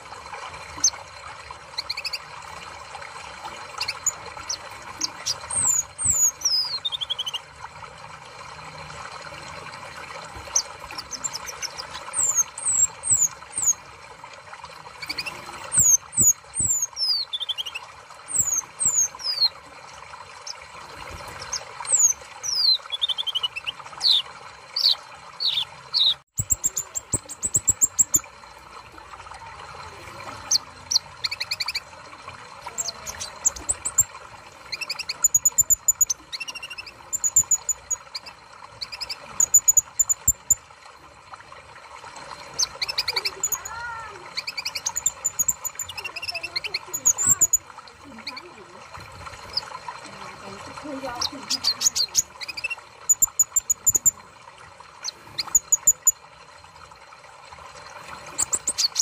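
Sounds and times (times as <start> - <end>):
bird singing high chirps: 1.8 - 2.2, 3.8 - 7.4, 15.0 - 19.5, 21.4 - 24.2.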